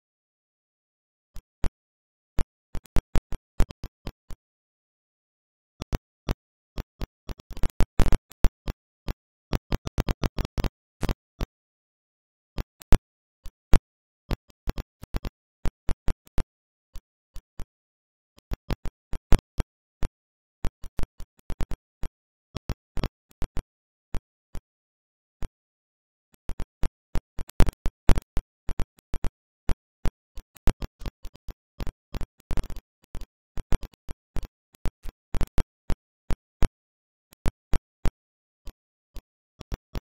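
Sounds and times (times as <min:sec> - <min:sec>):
sharp clicks and pops: 0:05.8 - 0:11.5, 0:14.3 - 0:17.5, 0:18.4 - 0:24.7, 0:26.4 - 0:40.0.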